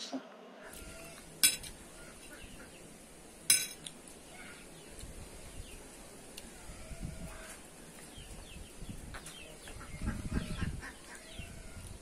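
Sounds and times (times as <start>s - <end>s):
fork clinking on plate: 1.4s - 1.8s, 3.5s - 3.9s.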